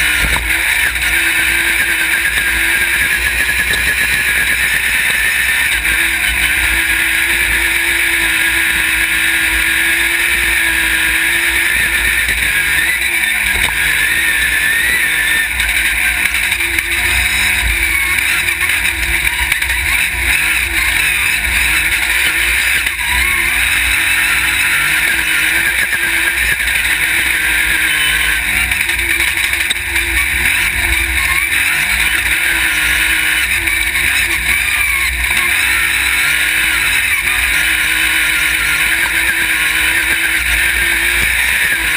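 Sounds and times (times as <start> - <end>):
buggy engine revving: 0.0 - 41.9.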